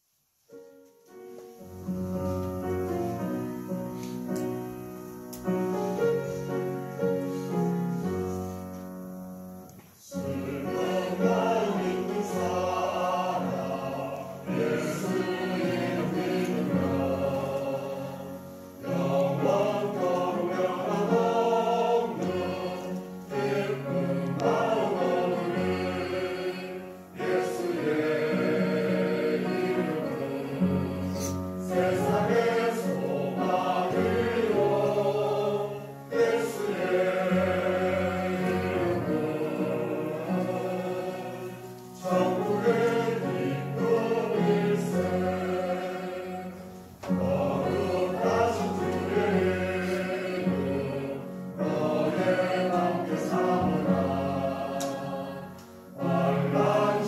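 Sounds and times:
piano introduction: 0.5s - 57.0s
group singing a hymn: 1.6s - 8.8s, 9.9s - 57.0s.

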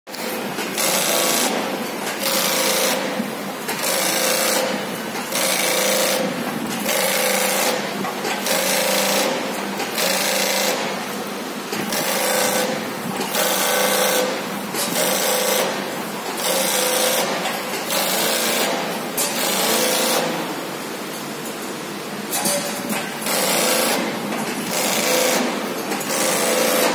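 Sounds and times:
industrial sewing machine running: 0.1s - 20.9s, 22.4s - 26.9s.

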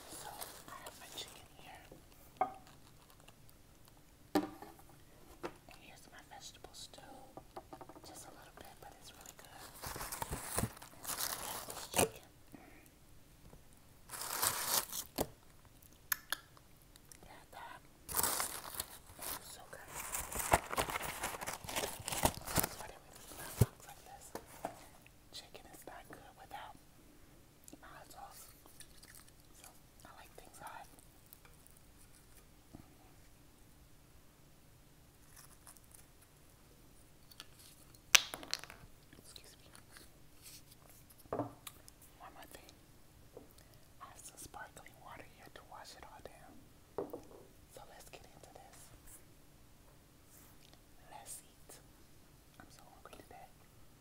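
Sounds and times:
cardboard box rustling and crinkling: 9.6s - 12.0s, 18.1s - 23.8s.

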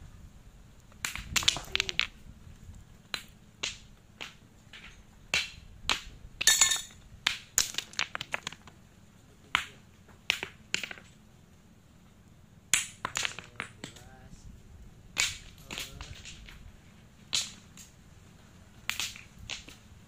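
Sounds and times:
stones clacking against rocks: 0.8s - 2.2s, 3.1s - 8.8s, 9.5s - 11.2s, 12.7s - 14.1s, 15.1s - 18.0s, 18.8s - 19.9s.

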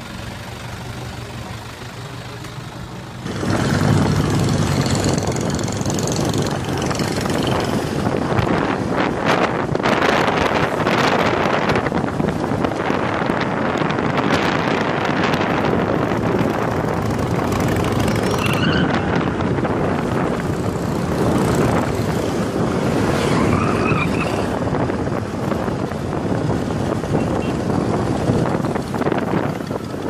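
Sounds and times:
motorcycle engines: 0.0s - 30.0s
street traffic: 0.0s - 30.0s
wind buffeting microphone: 3.2s - 30.0s.

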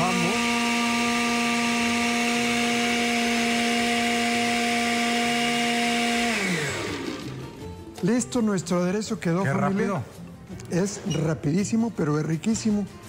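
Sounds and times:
blender motor spinning down: 0.0s - 7.7s
blender running: 0.0s - 7.8s.

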